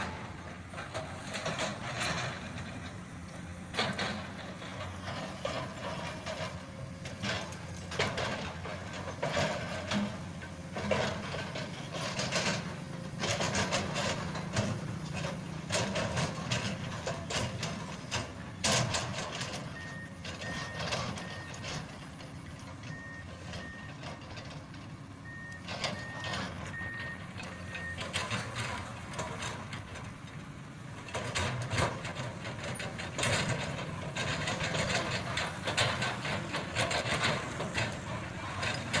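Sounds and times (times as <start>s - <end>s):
excavator diesel engine: 0.0s - 39.0s
reversing alarm beeping: 19.6s - 22.1s, 22.8s - 24.3s, 25.2s - 28.6s.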